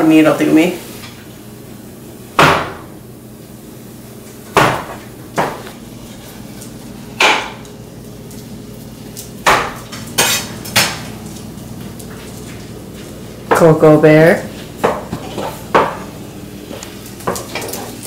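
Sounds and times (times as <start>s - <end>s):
metal kitchen utensils clanking: 9.8s - 11.2s, 14.8s - 16.0s.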